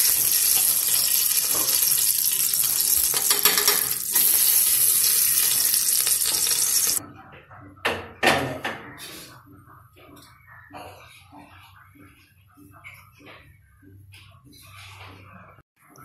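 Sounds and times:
ghee sizzling: 0:00.0 - 0:07.0.

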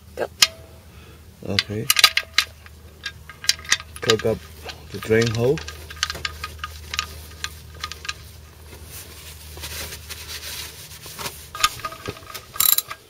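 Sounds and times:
scraping handling noise: 0:01.5 - 0:13.0
ratchet wrench clicking: 0:01.6 - 0:08.3, 0:11.6 - 0:13.0.

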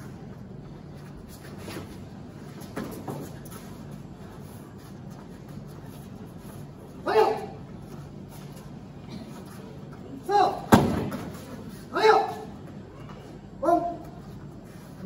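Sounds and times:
low room hum: 0:00.0 - 0:15.0
thuds and scuffs on a mat: 0:01.2 - 0:06.1, 0:10.6 - 0:11.7.

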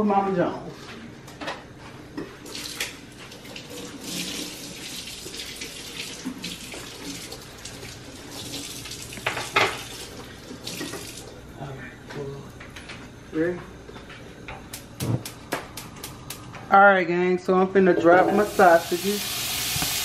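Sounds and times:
tap water running into sink: 0:02.5 - 0:11.3, 0:18.3 - 0:20.0.

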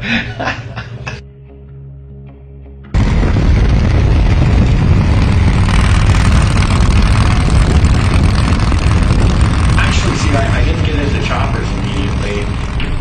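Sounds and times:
motorcycle engine running: 0:02.9 - 0:13.0.

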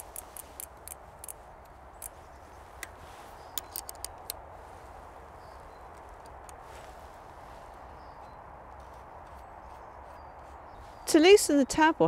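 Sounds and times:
spanner clicking on axle nut: 0:00.0 - 0:01.4, 0:03.6 - 0:04.4.

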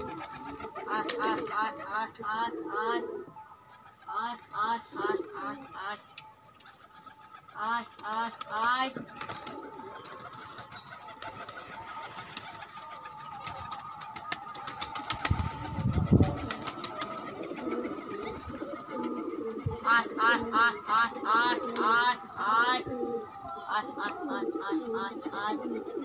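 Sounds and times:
pigeon wings flapping: 0:00.0 - 0:02.0, 0:06.6 - 0:23.4.

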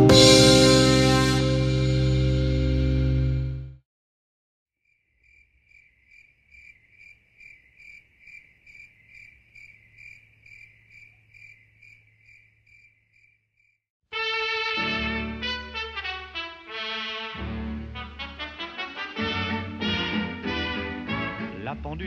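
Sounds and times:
cricket chirping: 0:04.8 - 0:13.8.

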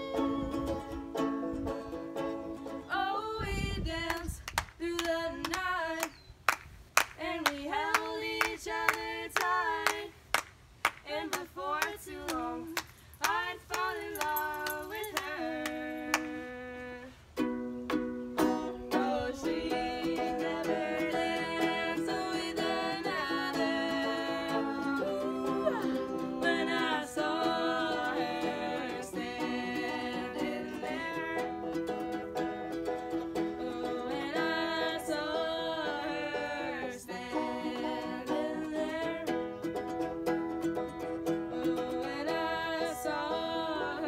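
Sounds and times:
banjo: 0:00.0 - 0:03.0, 0:17.4 - 0:44.0
young female voices singing: 0:02.9 - 0:06.1, 0:07.2 - 0:10.2, 0:11.0 - 0:17.2, 0:18.7 - 0:31.9, 0:33.4 - 0:39.5, 0:41.3 - 0:44.0.

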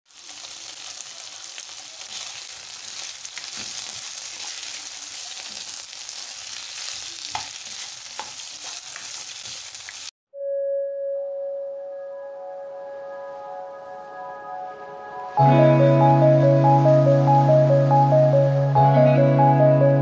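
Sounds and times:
meat sizzling in oil: 0:00.1 - 0:10.2
spatula tapping and scraping pan: 0:06.8 - 0:09.6.

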